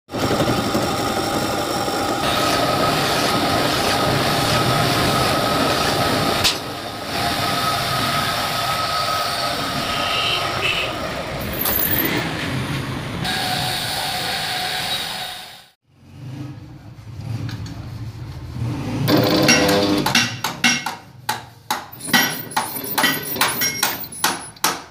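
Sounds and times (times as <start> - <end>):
metal lathe running: 21.9 - 24.6.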